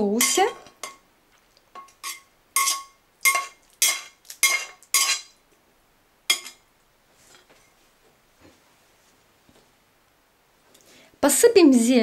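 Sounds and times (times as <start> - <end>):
utensil scraping a frying pan: 0.0 - 1.0, 1.8 - 5.4, 6.3 - 6.6.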